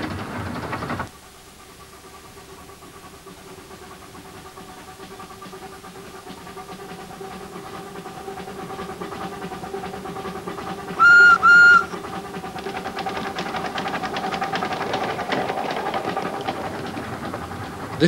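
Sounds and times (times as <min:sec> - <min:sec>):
steam locomotive chuffing: 0:00.0 - 0:18.0
steam locomotive whistle blasts: 0:11.0 - 0:12.0.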